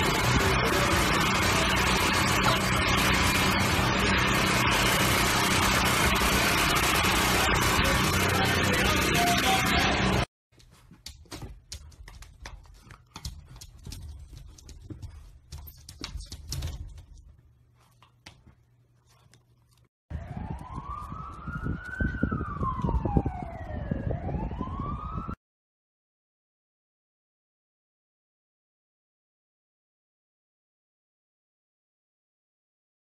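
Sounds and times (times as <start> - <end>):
siren wailing: 0.0 - 10.3, 20.1 - 25.4
puppy paws scrabbling and tapping: 10.5 - 19.9.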